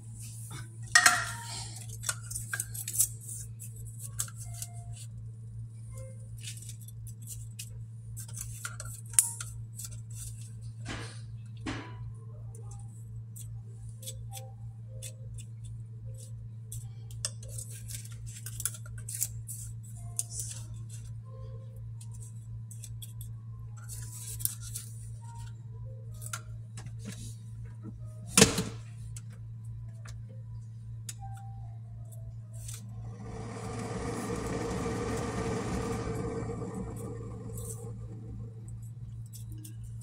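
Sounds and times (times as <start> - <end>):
spoon knocking on cup: 1.0 - 1.5.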